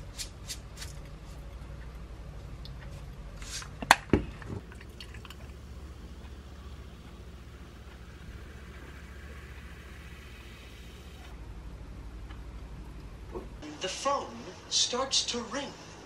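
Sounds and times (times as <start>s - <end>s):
cola pouring and fizzing: 4.4s - 5.7s.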